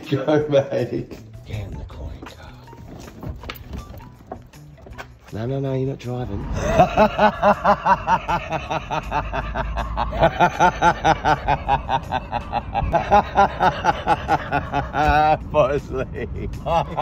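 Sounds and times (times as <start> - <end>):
man laughing: 6.4 - 17.0.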